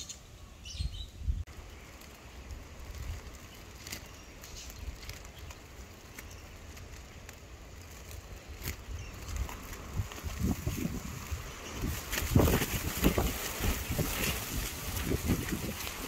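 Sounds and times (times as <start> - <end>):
plastic wrap crackling: 1.5 - 16.0.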